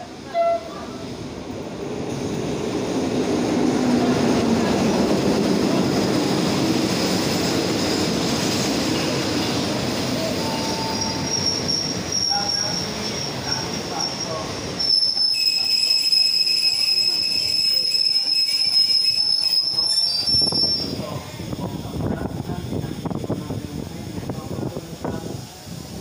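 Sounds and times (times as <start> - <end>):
train wheels rumbling and clattering: 1.0 - 26.0
high wheel squeal: 10.3 - 21.0.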